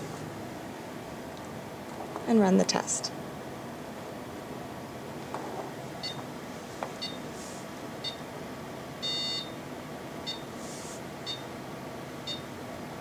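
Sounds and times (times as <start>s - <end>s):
short electronic beeps: 9.0s - 9.6s.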